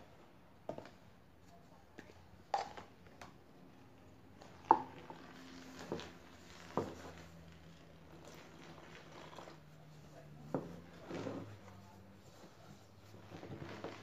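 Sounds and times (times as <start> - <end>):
paintbrush stirring wet slurry: 4.4 - 14.0.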